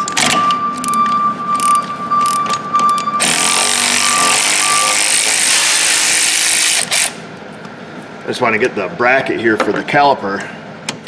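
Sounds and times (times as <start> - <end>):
pneumatic air ratchet: 1.6 - 7.2.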